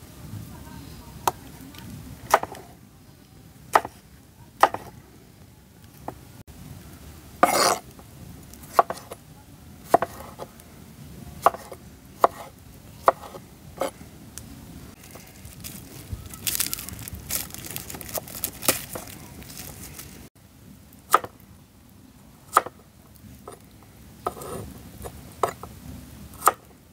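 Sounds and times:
knife cutting on wooden board: 0:07.4 - 0:07.8, 0:08.7 - 0:09.2, 0:09.9 - 0:10.5, 0:11.4 - 0:14.0, 0:24.2 - 0:25.7.

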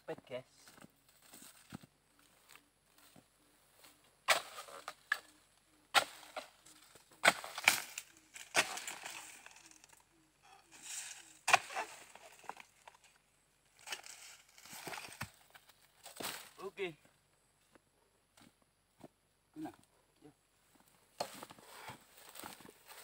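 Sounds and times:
fronds rustling: 0:01.0 - 0:16.8
chisel chopping palm stalks: 0:04.2 - 0:05.3, 0:05.9 - 0:06.6, 0:07.2 - 0:09.6, 0:10.8 - 0:13.0.

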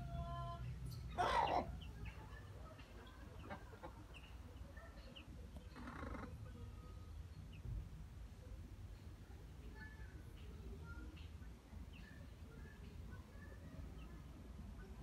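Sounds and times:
baby chicks peeping: 0:00.0 - 0:15.0.

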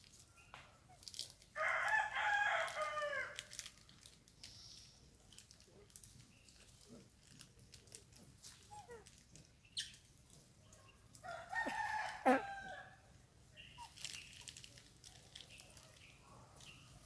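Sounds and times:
faint clicks and rustles: 0:00.0 - 0:12.2, 0:13.7 - 0:17.0
rooster crowing: 0:11.2 - 0:13.0.

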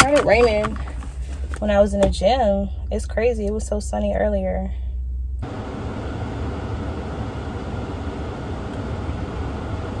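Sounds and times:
steady hiss in car cabin: 0:05.4 - 0:10.0.

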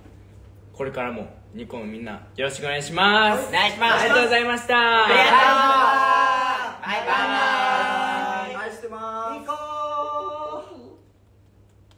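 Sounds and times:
young men calling out together: 0:03.3 - 0:11.0.

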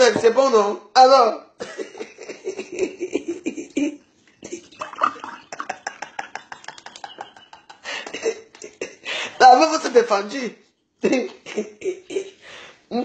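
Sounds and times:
woman laughing: 0:01.6 - 0:09.0.

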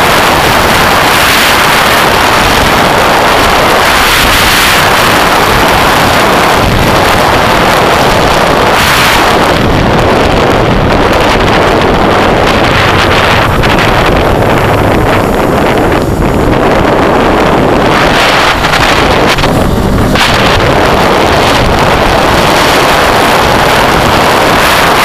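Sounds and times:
motorcycle engine running: 0:00.0 - 0:25.0
wind noise on microphone: 0:00.0 - 0:25.0.

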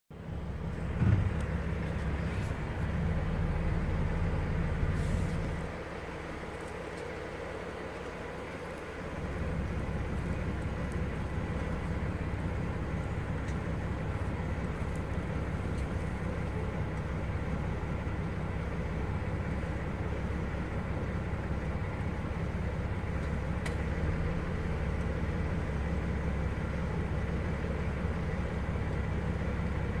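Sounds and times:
low rumble: 0:00.1 - 0:30.0.

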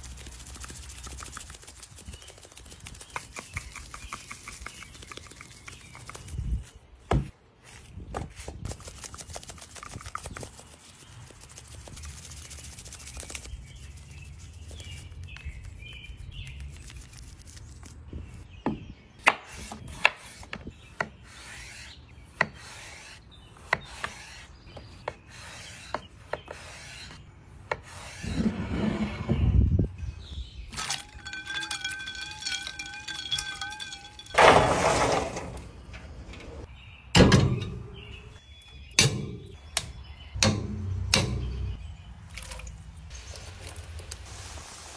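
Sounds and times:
hand rubbing spice onto meat: 0:00.0 - 0:06.4, 0:08.6 - 0:18.0.

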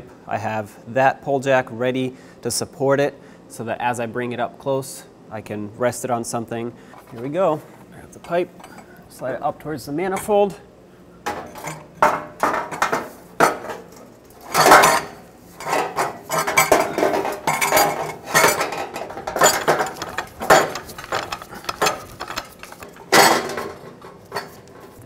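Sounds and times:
exhaust pipe clanking against metal: 0:11.3 - 0:24.6.

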